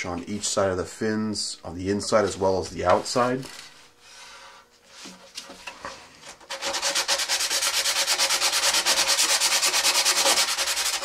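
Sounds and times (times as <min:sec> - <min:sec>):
hand sanding fiberglass: 0:06.2 - 0:11.0.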